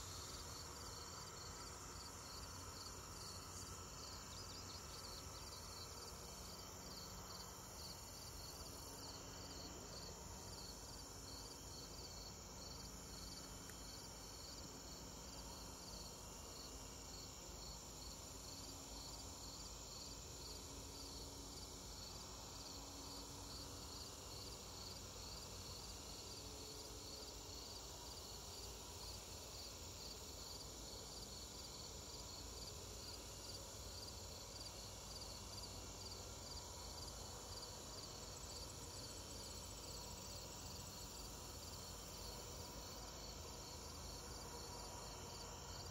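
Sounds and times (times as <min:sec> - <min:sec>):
crickets chirping: 0:00.0 - 0:45.9.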